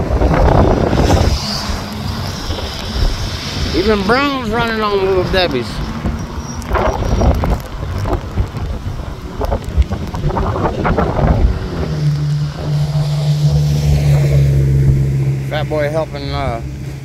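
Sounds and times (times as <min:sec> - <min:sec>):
rain: 0:00.0 - 0:17.0
traffic on wet road: 0:00.0 - 0:17.0
wind buffeting microphone: 0:00.0 - 0:17.0
low engine hum: 0:05.3 - 0:17.0.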